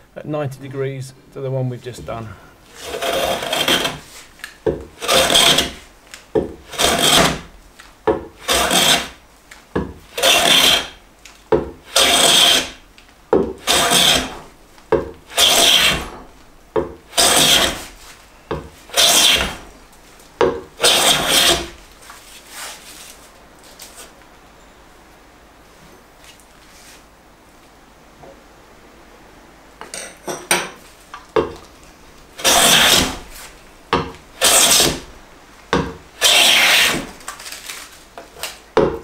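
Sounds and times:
hand plane swishing on wood: 2.7s - 4.3s, 5.0s - 5.9s, 6.6s - 7.5s, 8.4s - 9.2s, 10.1s - 11.0s, 11.9s - 12.8s, 13.6s - 14.5s, 15.3s - 16.3s, 17.1s - 19.7s, 20.8s - 23.2s, 32.4s - 33.5s, 34.4s - 35.1s, 35.8s - 37.1s.

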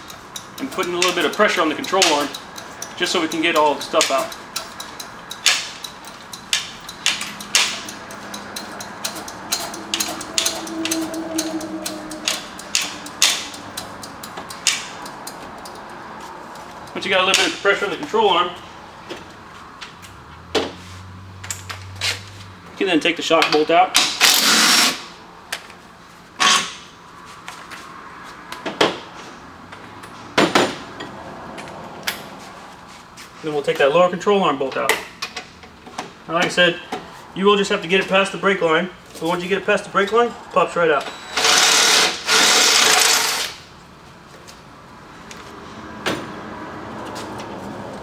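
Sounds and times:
tool on metal: 0.0s - 15.3s.

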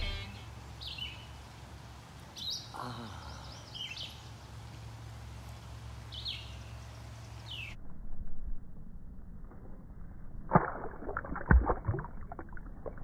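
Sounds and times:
songbird chirping: 0.0s - 7.8s.

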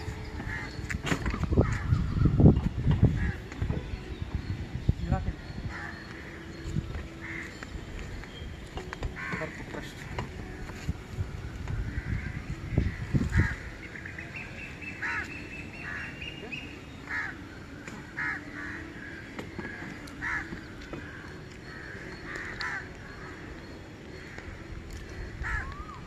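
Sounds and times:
crows cawing: 0.5s - 0.8s, 3.1s - 3.5s, 5.7s - 6.6s, 7.2s - 7.6s, 9.2s - 10.5s, 11.8s - 14.0s, 15.0s - 16.4s, 17.0s - 17.4s, 18.1s - 23.5s, 24.1s - 26.0s.

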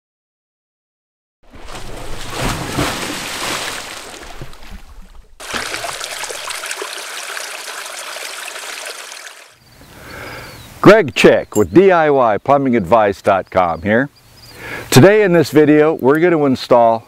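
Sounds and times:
water splashing and rushing: 1.4s - 9.6s
running water: 1.5s - 9.6s.

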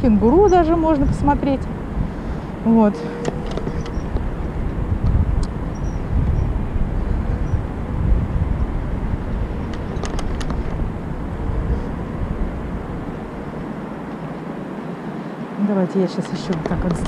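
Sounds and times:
wheels rumbling on pavement: 0.0s - 17.0s
sharp clicks: 16.5s - 17.0s.

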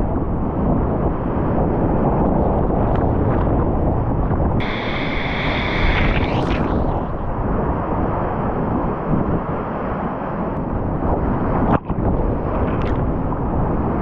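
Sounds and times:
hissing water splash: 4.6s - 7.9s.

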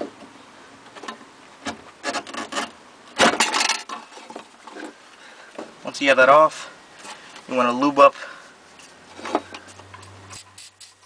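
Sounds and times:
rubber hose scraping: 1.6s - 5.6s, 8.7s - 11.0s.

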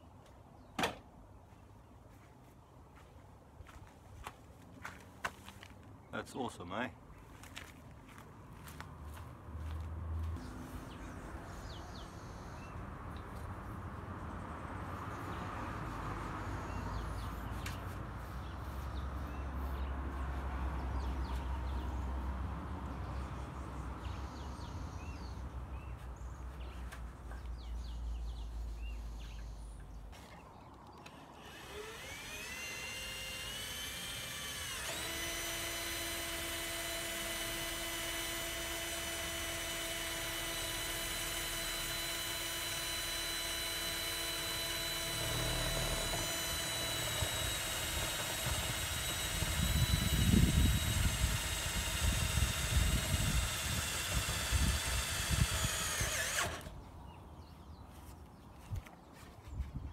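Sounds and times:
cordless drill motor whine: 31.4s - 56.8s.

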